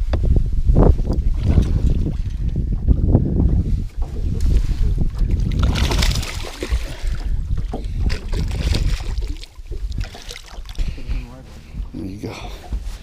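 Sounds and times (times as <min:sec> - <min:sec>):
wind buffeting microphone: 0:00.0 - 0:13.0
clothing rubbing on microphone: 0:03.5 - 0:05.3.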